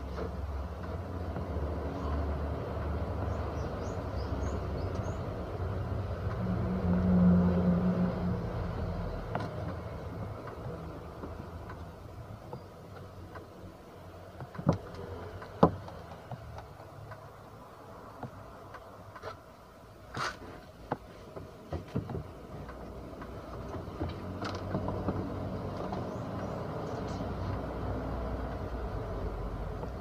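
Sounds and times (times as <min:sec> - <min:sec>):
knocks and clicks of handling parts: 0:09.2 - 0:13.6, 0:14.2 - 0:17.3, 0:18.1 - 0:19.4, 0:20.2 - 0:27.6.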